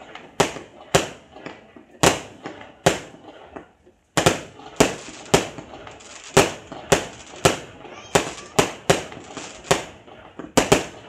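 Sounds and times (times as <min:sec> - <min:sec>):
fireworks bangs with echo: 0:00.0 - 0:11.0.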